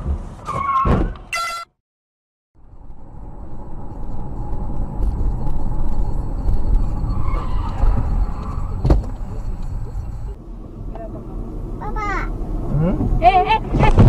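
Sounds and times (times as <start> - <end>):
car road and engine rumble: 2.6 - 14.0
sharp thump: 8.8 - 9.2.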